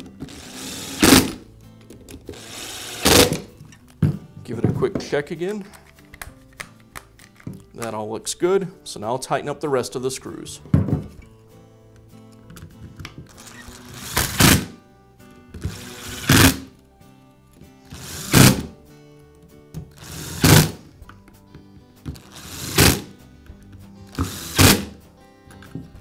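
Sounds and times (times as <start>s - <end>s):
power screwdriver driving screws: 0.2s - 1.4s, 2.3s - 3.5s, 13.3s - 14.8s, 15.6s - 16.7s, 17.9s - 18.7s, 20.0s - 20.8s, 22.2s - 23.1s, 24.1s - 25.0s.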